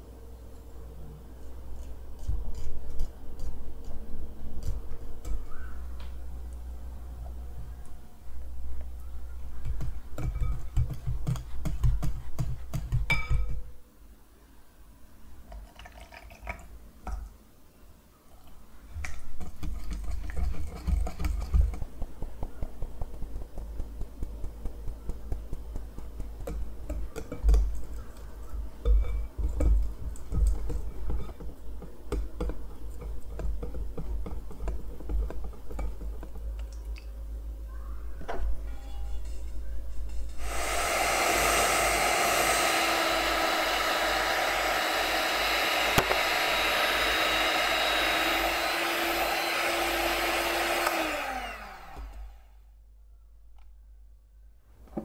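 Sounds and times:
flour sifting: 40.4s - 52.3s.

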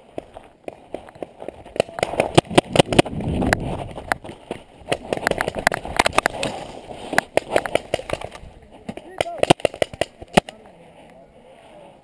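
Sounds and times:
hurried footsteps: 0.0s - 12.0s
wind rumble on microphone: 2.1s - 6.4s.

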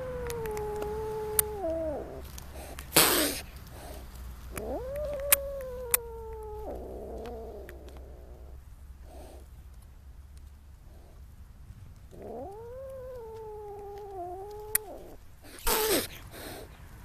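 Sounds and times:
kitten yowling: 0.0s - 2.3s, 4.5s - 8.5s, 12.1s - 16.6s
kitten hissing: 0.0s - 9.5s, 12.1s - 16.8s.

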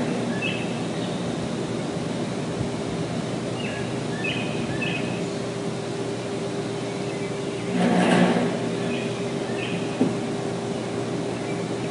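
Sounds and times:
machine hum: 0.0s - 11.9s
bird chirping: 0.3s - 1.2s, 3.6s - 5.4s, 8.7s - 10.0s.

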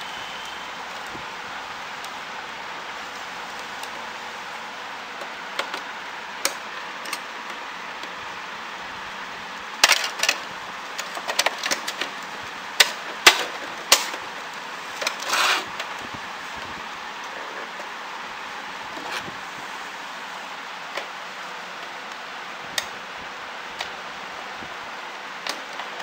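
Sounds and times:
steady hiss: 0.0s - 26.0s
plastic printer parts clicking: 9.8s - 10.4s, 11.0s - 12.2s
short scrape: 15.2s - 15.7s.

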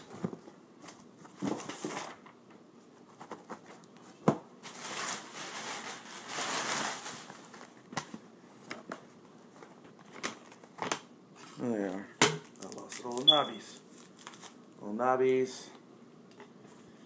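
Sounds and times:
packaging rustling and crinkling: 3.2s - 7.9s, 12.4s - 14.6s.

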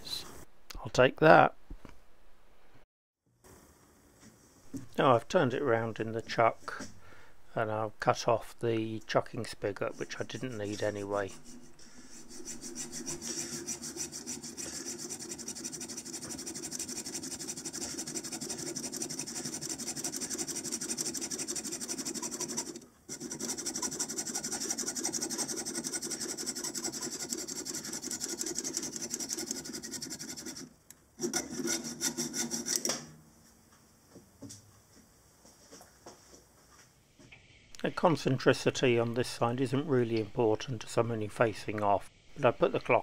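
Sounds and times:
hacksaw sawing metal: 9.6s - 33.0s.

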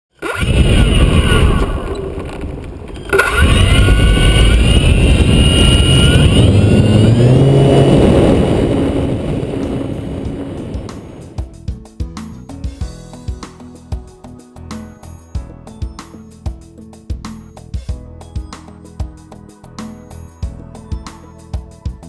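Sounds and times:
wheels rumbling on asphalt: 0.1s - 11.5s
model airplane motor whining: 0.2s - 11.4s.

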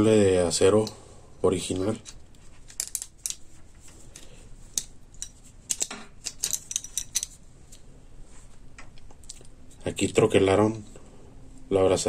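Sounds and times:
metallic clicks and jingles: 4.1s - 7.4s.

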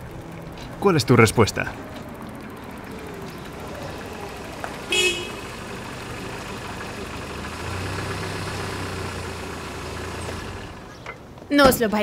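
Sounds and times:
low engine hum: 0.0s - 11.5s
street traffic: 0.0s - 12.0s
car horn toot: 4.8s - 5.7s.

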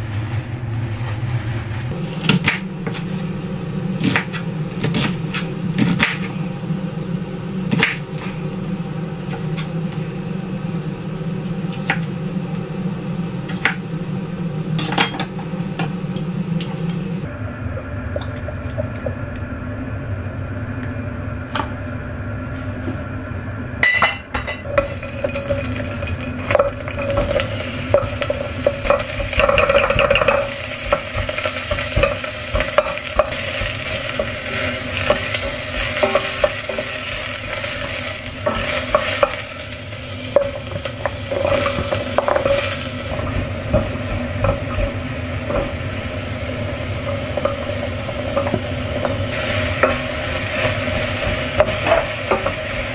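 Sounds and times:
steady low hum: 0.0s - 52.9s
spatula scraping and knocking pan: 24.6s - 46.1s, 47.0s - 52.9s
vegetables sizzling in saucepan: 24.6s - 52.9s.

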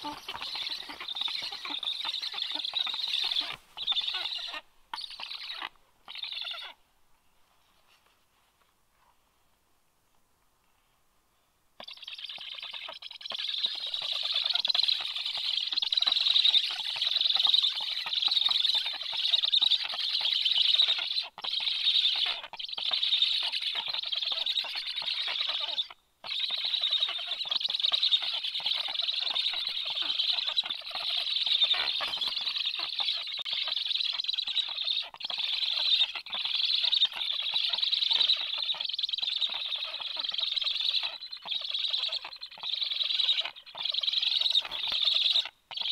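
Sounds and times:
stork chicks begging: 0.0s - 6.8s, 11.8s - 45.9s.

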